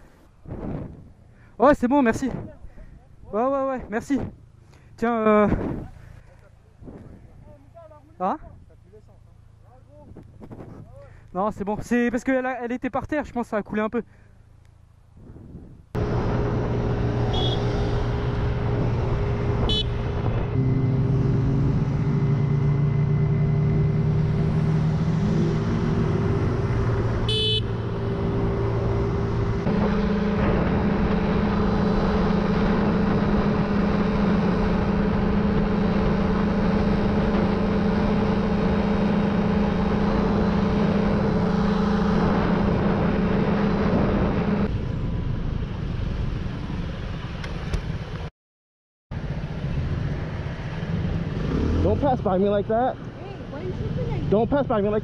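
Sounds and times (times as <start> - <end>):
wind and road noise: 0.0 - 48.3, 49.1 - 55.0
motorcycle engine running: 16.0 - 44.6
short horn beep: 17.3 - 17.9, 19.7 - 20.1, 27.3 - 28.0.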